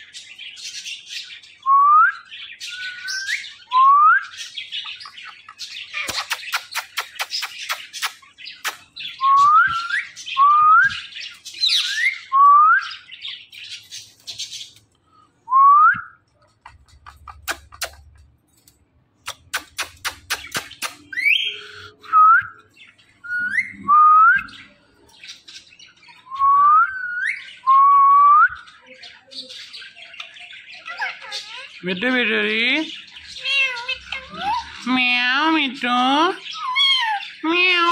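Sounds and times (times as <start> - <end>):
parrot scratchy chatter: 4.9 - 9.0, 16.5 - 21.8, 30.2 - 35.1, 36.4 - 37.9
parrot whistling: 36.5 - 37.9.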